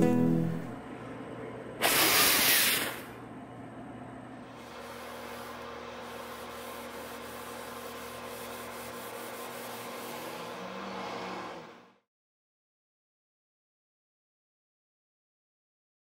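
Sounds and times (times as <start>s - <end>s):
faint hum: 0.0s - 10.2s
cloth rubbing on wood: 4.7s - 10.7s.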